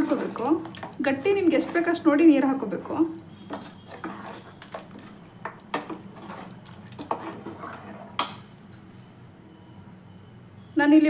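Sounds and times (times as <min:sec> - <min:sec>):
metal ladle scraping a pot: 0:03.5 - 0:08.4.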